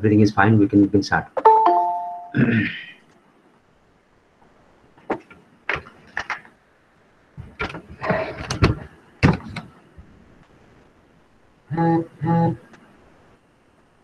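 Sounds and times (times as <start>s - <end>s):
clicks and knocks at desk: 5.0s - 6.5s, 7.4s - 9.7s.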